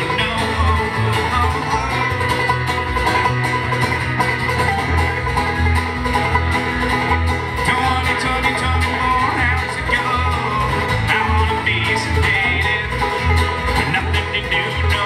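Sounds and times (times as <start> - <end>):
banjo picking: 0.0 - 15.0
low bass notes: 0.0 - 15.0
strummed acoustic guitar: 0.0 - 15.0.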